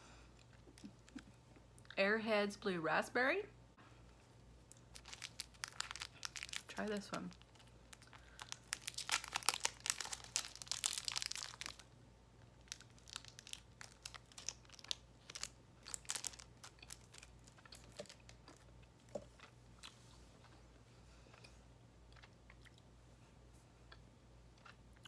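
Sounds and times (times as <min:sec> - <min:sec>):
candy wrapper crinkling and tearing: 0:04.7 - 0:19.1
chewing mouth sounds: 0:21.2 - 0:22.9.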